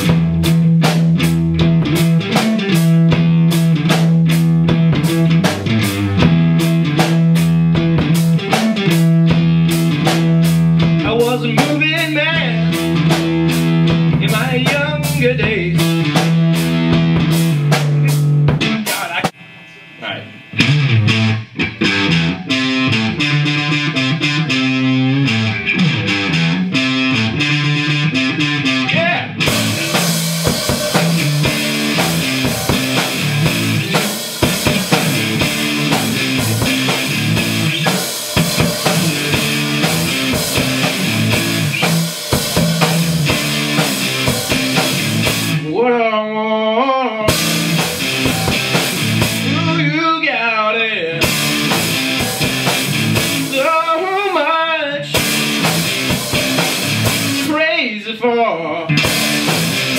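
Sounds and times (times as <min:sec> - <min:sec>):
drum kit beat: 0:00.0 - 0:45.7, 0:47.3 - 0:50.0, 0:51.2 - 0:57.6, 0:58.9 - 0:59.9
electric guitar riffing: 0:00.0 - 0:59.9
wavering bent guitar note: 0:18.6 - 0:22.4.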